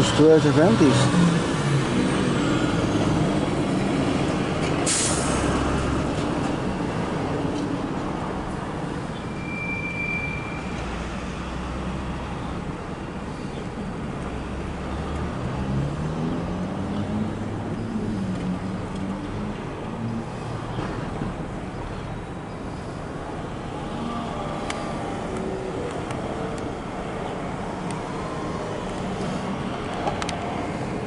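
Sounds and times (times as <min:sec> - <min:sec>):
short high squeal: 0:09.2 - 0:11.0.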